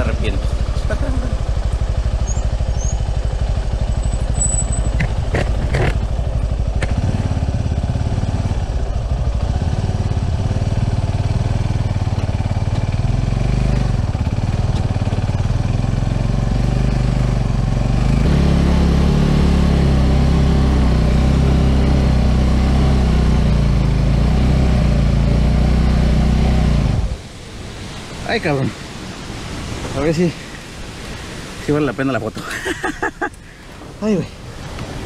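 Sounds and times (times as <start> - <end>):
motorcycle engine running: 0.0 - 27.2.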